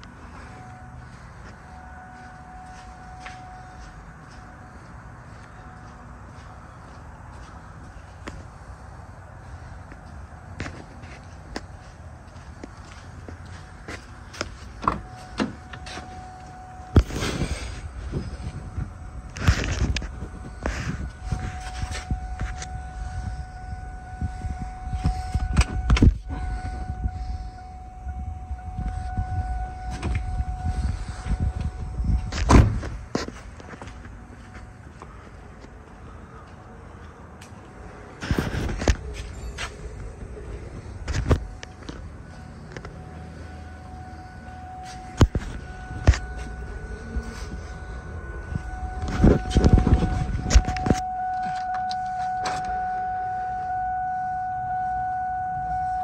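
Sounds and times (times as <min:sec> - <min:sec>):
faint steady high tone: 0:00.0 - 0:09.9, 0:12.3 - 0:33.3, 0:34.1 - 0:56.0
low rumble: 0:11.8 - 0:51.2
car door slamming shut: 0:32.4 - 0:32.9.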